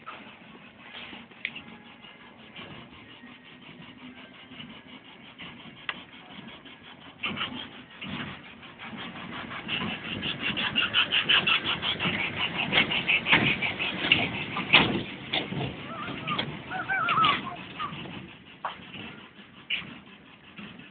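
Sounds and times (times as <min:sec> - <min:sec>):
miniature train wheels clattering: 0:00.0 - 0:20.9.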